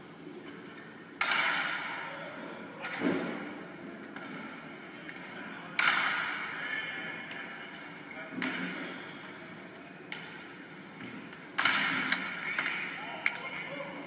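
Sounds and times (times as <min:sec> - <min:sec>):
volleyball hits echoing: 0:01.2 - 0:02.1, 0:11.4 - 0:13.7.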